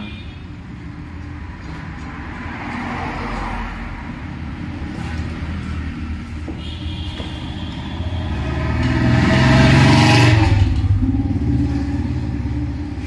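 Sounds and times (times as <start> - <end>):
road traffic rumble: 0.0 - 13.0
vehicle passing: 7.2 - 13.0.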